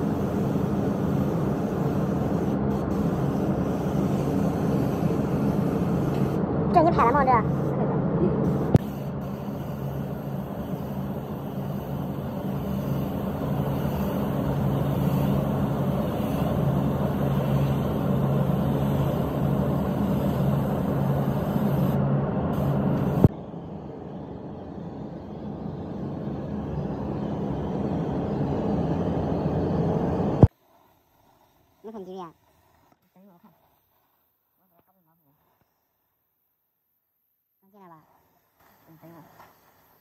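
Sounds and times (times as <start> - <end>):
spray gun spraying paint: 0.0 - 7.8, 8.4 - 23.4, 30.4 - 35.7, 37.7 - 40.0
air-blowing machinery drone: 0.0 - 33.8.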